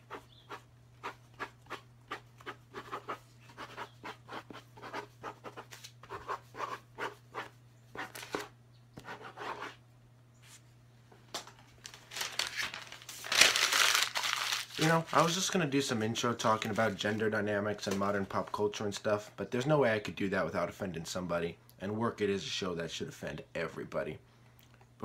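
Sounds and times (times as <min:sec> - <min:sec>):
pen scratching on paper: 0:00.0 - 0:09.8.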